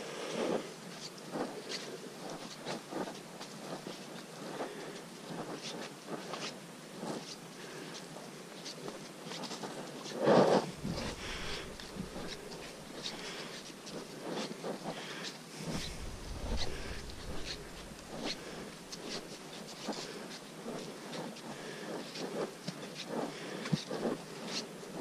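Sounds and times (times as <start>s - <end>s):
footsteps on muddy trail: 10.6s - 14.0s, 15.6s - 19.4s.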